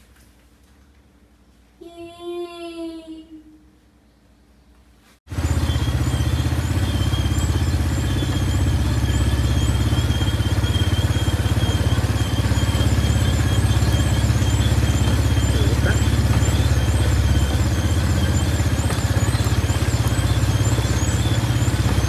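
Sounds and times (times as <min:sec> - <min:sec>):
quad bike engine running: 0:05.3 - 0:22.0
faint high whine: 0:05.4 - 0:22.0.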